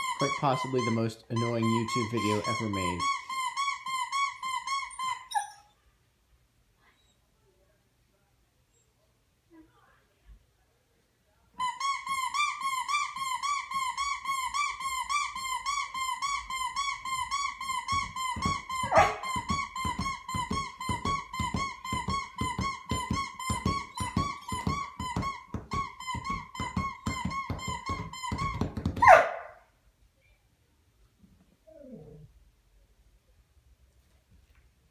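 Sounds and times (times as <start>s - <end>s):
rubber exercise ball squeaking: 0.0s - 5.7s, 11.6s - 29.3s
dog crying: 0.0s - 5.8s, 11.6s - 29.6s
soft thumps: 17.8s - 29.1s.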